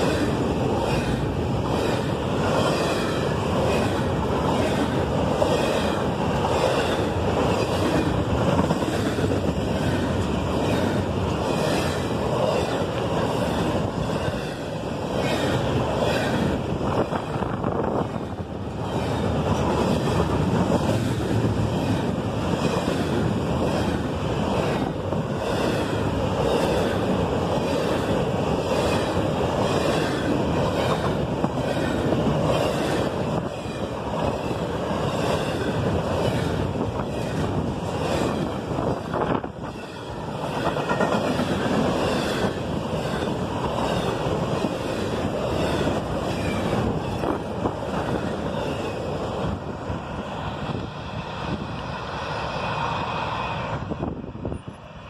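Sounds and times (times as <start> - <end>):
wheels clicking on rails: 0.0 - 49.6
freight train passing: 0.0 - 55.0.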